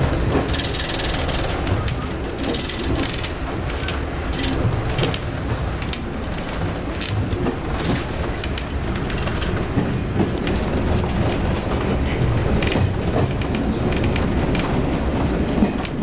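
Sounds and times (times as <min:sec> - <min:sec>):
train wheels rumbling on rail: 0:00.0 - 0:16.0
short rattles and clicks: 0:00.4 - 0:05.2, 0:07.8 - 0:11.2.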